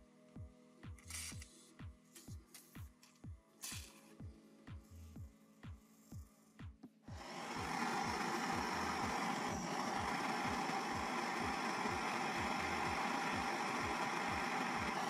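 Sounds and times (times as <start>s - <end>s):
faint background music beat: 0.0s - 15.0s
blowtorch flame rushing: 7.2s - 15.0s.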